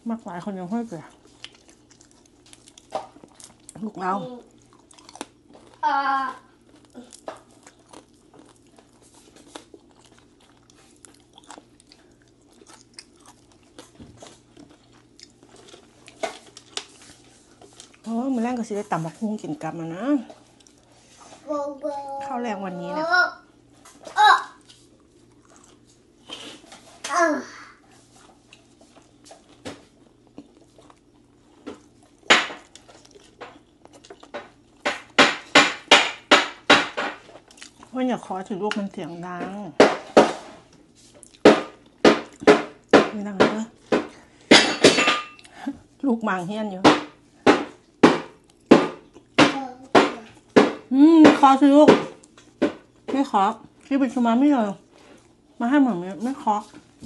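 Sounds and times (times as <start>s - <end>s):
chewing and crunching: 0.0s - 21.4s, 23.6s - 27.0s, 27.8s - 35.2s, 37.0s - 39.4s, 40.6s - 44.5s, 47.2s - 49.4s, 52.2s - 55.6s.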